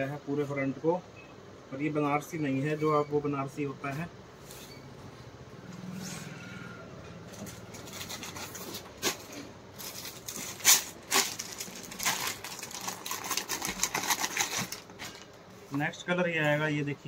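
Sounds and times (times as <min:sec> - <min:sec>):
plastic packaging crinkling: 0:07.4 - 0:15.4.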